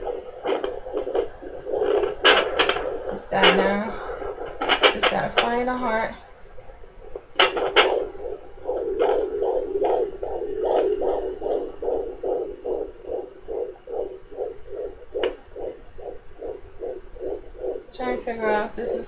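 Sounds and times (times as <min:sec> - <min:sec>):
fetal heartbeat on doppler: 0:00.0 - 0:19.0
sharp knocks: 0:00.5 - 0:03.8, 0:07.2 - 0:18.0.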